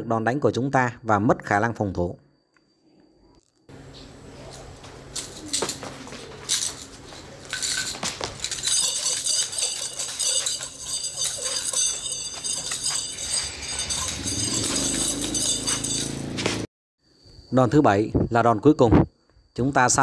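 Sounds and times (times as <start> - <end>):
nunchaku chain clinking and rattling: 4.4 - 16.7.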